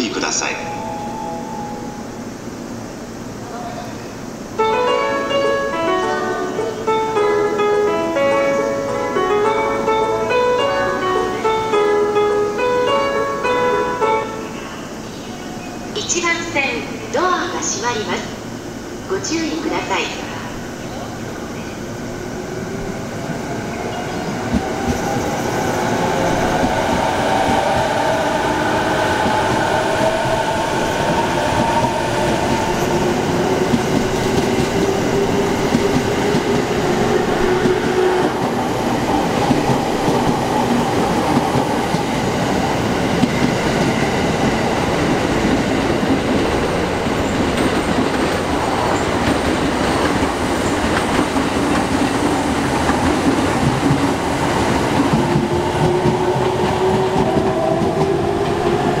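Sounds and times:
train wheels on rail: 17.4s - 59.0s.

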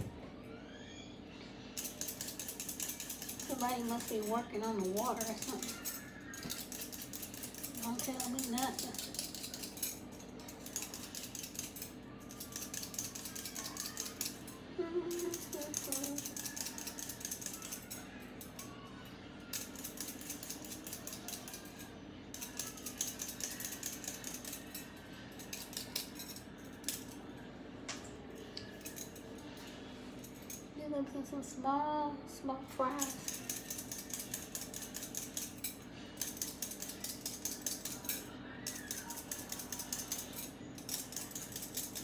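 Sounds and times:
peeler scraping potato skin: 1.8s - 14.4s, 15.0s - 18.7s, 19.5s - 27.2s, 32.9s - 42.0s.

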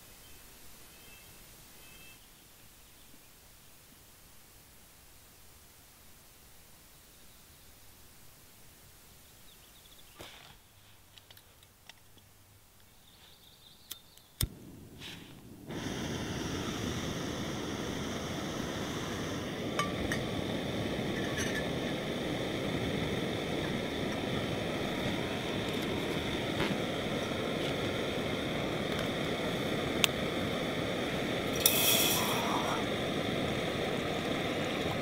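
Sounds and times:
gas burner hissing: 13.8s - 35.0s
gas stove igniter clicks: 16.9s - 30.3s, 31.4s - 32.4s.

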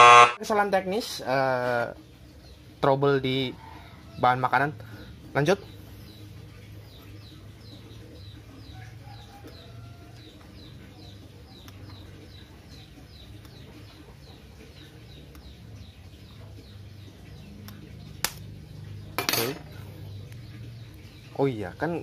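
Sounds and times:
small bird chirping: 5.0s - 22.0s.

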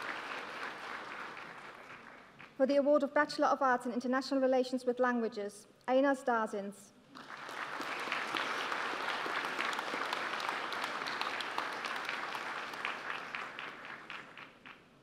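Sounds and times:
audience applauding: 0.0s - 2.5s, 7.1s - 14.9s.

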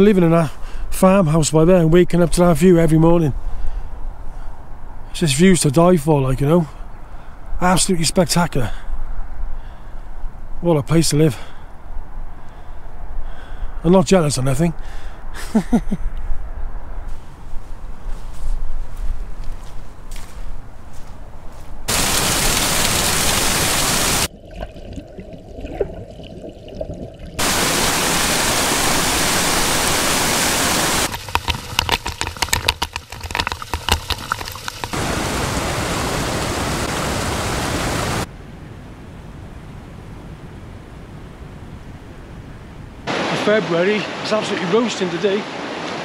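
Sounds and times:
waterfall rushing over rocks: 21.9s - 24.3s, 27.4s - 31.2s, 34.8s - 38.3s, 43.1s - 46.0s.

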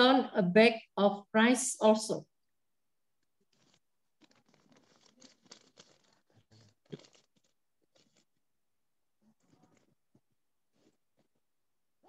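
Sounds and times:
faint rustles and clicks: 3.5s - 8.3s.

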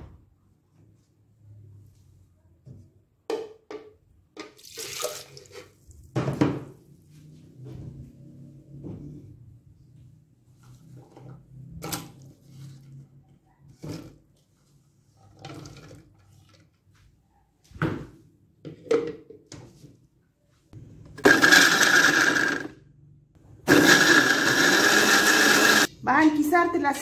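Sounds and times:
electric blender grinding: 21.2s - 22.8s, 23.7s - 25.9s.

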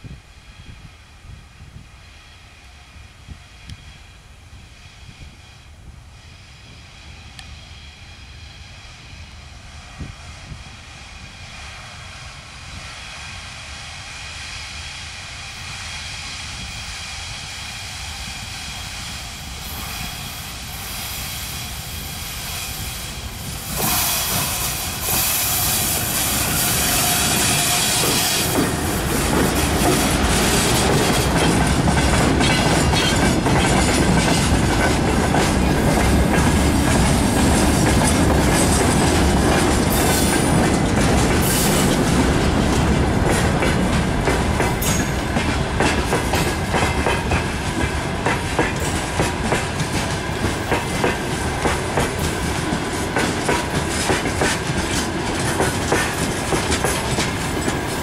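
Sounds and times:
electric locomotive passing: 0.0s - 58.0s
wagon wheels clicking over rails: 53.2s - 58.0s.

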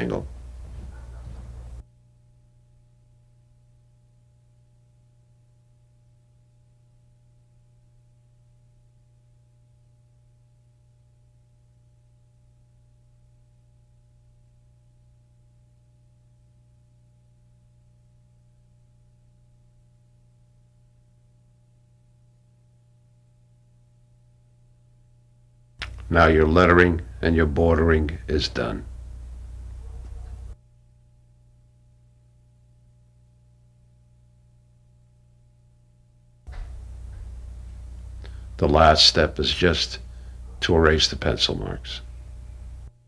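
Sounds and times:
low hum: 10.3s - 43.0s
faint high steady tones: 25.8s - 30.6s.

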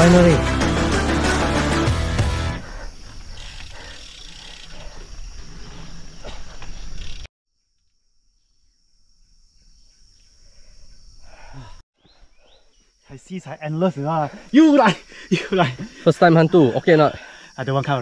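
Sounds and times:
insects droning: 2.5s - 18.0s.

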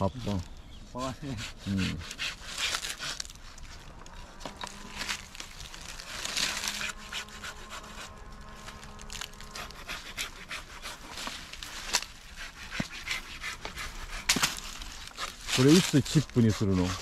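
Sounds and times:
dry branches scraping: 0.0s - 17.0s
crackles and knocks: 2.7s - 9.8s, 11.0s - 15.9s.

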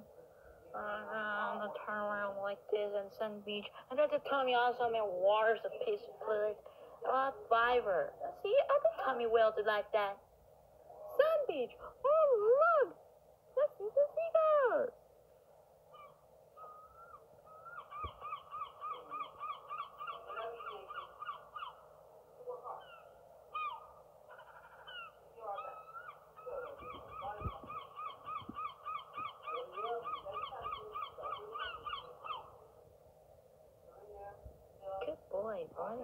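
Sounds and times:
seagulls calling: 15.9s - 22.0s, 22.7s - 32.6s.

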